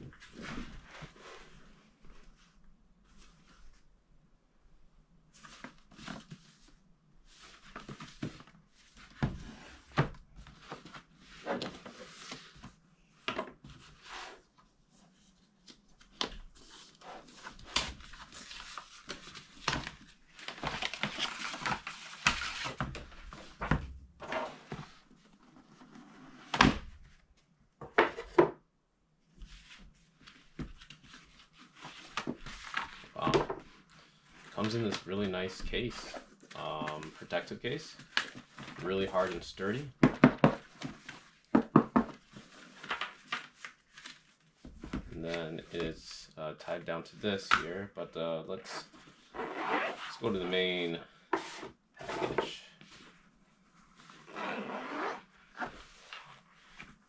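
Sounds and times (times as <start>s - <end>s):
sliding rubbing rustle: 48.7s - 57.0s
cardboard taps scrapes and rustles: 51.3s - 53.2s.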